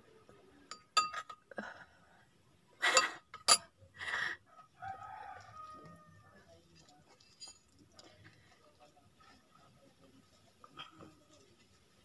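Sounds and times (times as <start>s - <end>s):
metal spoon clinking on bowl: 0.7s - 1.4s, 3.0s - 3.7s
soft eating sounds: 4.5s - 12.0s.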